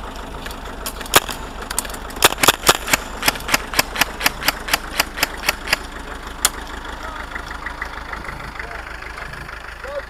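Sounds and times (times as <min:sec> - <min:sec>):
vehicle engine idling: 0:00.0 - 0:10.0
airsoft rifle shots: 0:01.1 - 0:01.4, 0:02.2 - 0:05.8.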